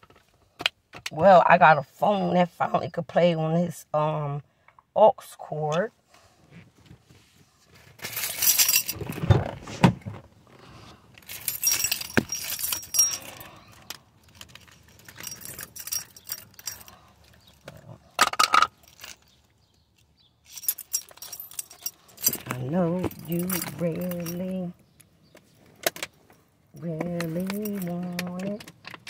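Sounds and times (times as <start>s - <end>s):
phone being handled rattling: 11.2s - 19.4s, 20.5s - 24.6s, 26.9s - 29.0s.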